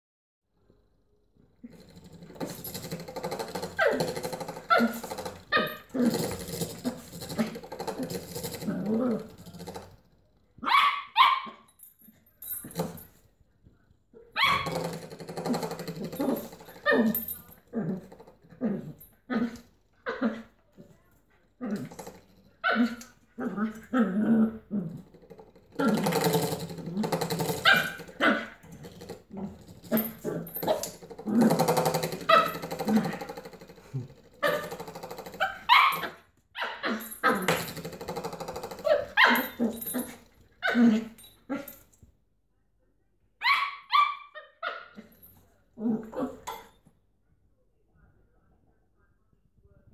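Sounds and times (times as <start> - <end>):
puppy growling in play: 1.6 - 10.2, 14.4 - 41.9, 44.7 - 46.8
puppy barking sharply: 10.6 - 11.6
puppy barking and yapping: 10.6 - 11.7, 14.3 - 14.8, 27.5 - 28.6, 34.4 - 37.4, 38.8 - 40.8, 43.4 - 45.0.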